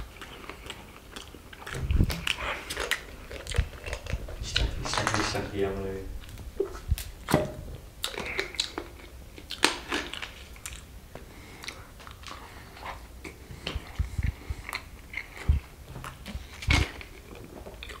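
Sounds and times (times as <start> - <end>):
chewing: 0.0 - 5.5, 8.0 - 18.0.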